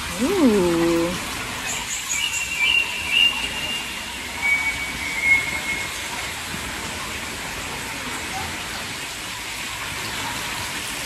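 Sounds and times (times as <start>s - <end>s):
heavy rain hissing: 0.0s - 1.2s.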